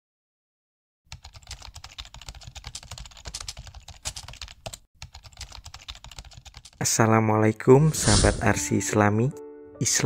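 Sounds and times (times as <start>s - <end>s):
fast keyboard typing: 1.1s - 6.9s.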